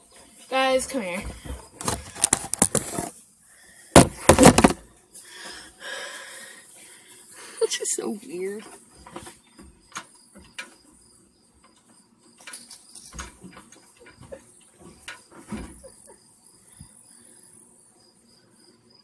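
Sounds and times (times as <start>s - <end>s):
crickets chirping: 0.0s - 19.0s
soft knocks and rustles: 8.6s - 10.8s, 11.8s - 16.0s.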